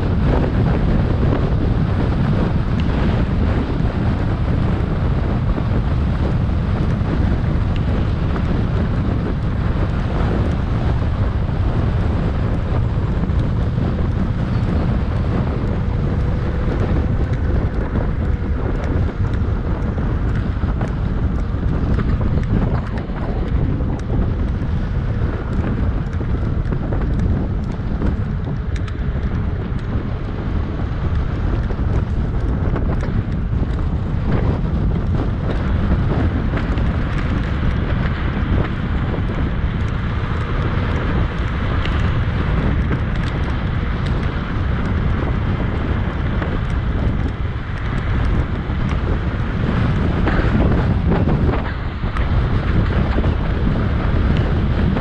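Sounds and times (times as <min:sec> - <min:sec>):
wind buffeting microphone: 0:00.0 - 0:55.0.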